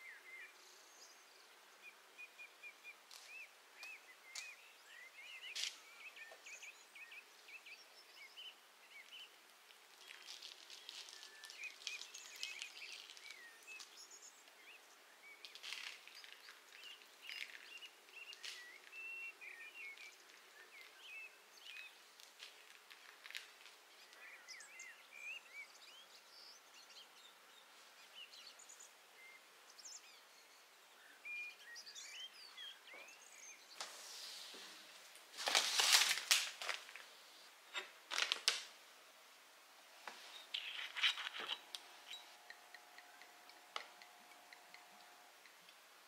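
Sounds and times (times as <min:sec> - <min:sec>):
faint bird chirps: 0:00.0 - 0:34.3, 0:40.2 - 0:45.8
plastic wrapper rustling: 0:09.7 - 0:14.0, 0:15.4 - 0:18.9, 0:21.7 - 0:23.8, 0:35.0 - 0:37.2, 0:37.8 - 0:38.8.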